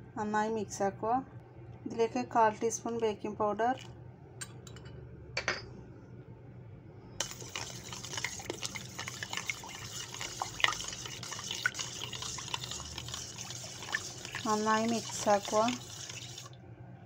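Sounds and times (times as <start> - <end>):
liquid sloshing in a bowl: 3.7 - 4.0, 7.2 - 16.6
utensil clinking against bowl: 7.2 - 16.5.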